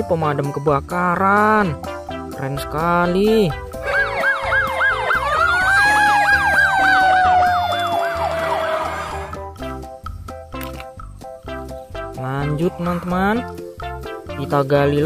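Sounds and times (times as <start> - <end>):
background music: 0.0 - 15.0
fire engine sirens: 3.8 - 9.4.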